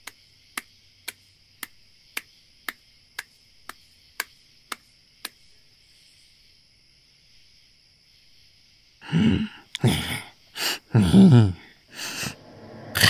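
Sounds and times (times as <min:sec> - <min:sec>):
sharp evenly spaced clicks: 0:00.0 - 0:05.5
high hiss of night ambience: 0:00.0 - 0:13.0.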